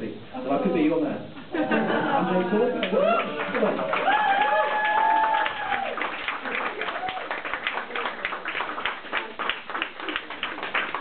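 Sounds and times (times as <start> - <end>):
small audience applauding: 2.3 - 11.0.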